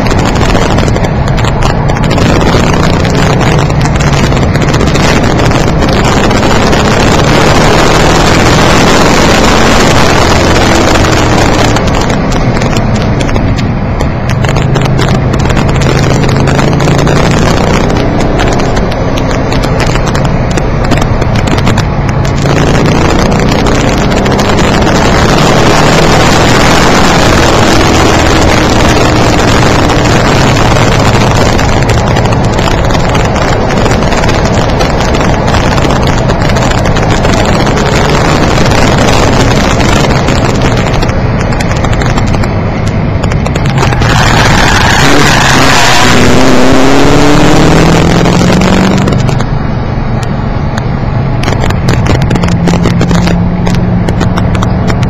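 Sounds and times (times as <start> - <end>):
distorted car engine and road noise: 0.0 - 55.0.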